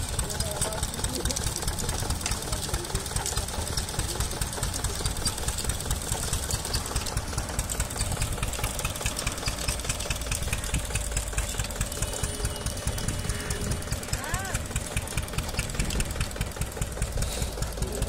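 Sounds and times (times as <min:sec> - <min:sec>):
engine running with knocking beat: 0:00.0 - 0:18.0.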